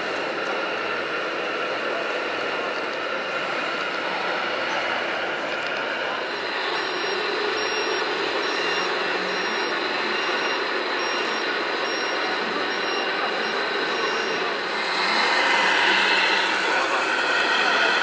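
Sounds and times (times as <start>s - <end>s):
model wheel loader working sand: 0.0s - 18.0s
faint high beep: 6.3s - 18.0s.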